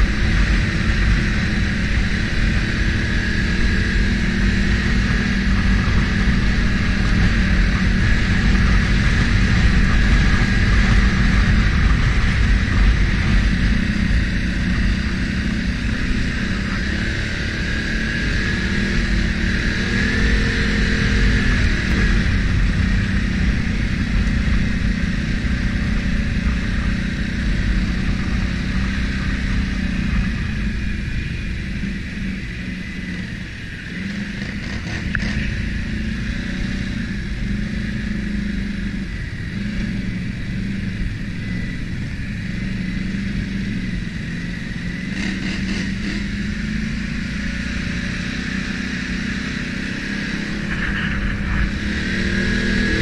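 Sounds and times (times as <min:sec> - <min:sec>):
atv engine running: 0:00.0 - 0:53.0.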